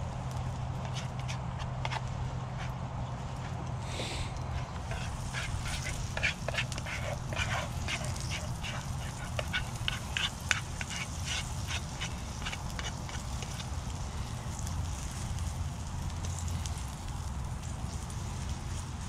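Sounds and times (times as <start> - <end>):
butter sizzling and popping: 4.4 - 19.0.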